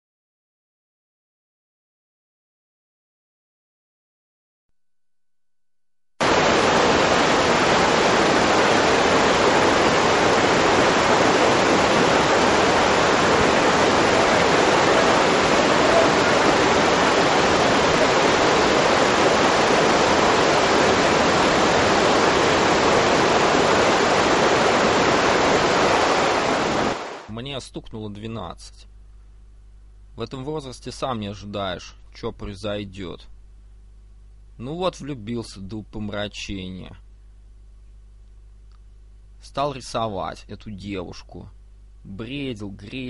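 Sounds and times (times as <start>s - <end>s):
rush of fast-flowing water: 6.2s - 27.3s.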